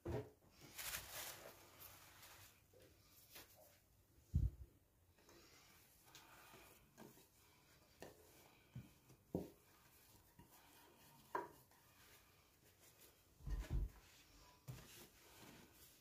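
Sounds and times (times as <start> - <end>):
light knocks and scrapes: 6.1 - 16.0.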